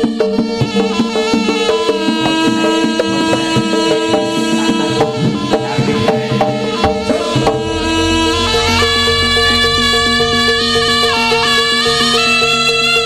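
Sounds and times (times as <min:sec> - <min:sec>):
hand drum strokes: 0:00.0 - 0:13.0
deep low tone: 0:05.0 - 0:11.7
held pitched gong tones: 0:05.0 - 0:12.4.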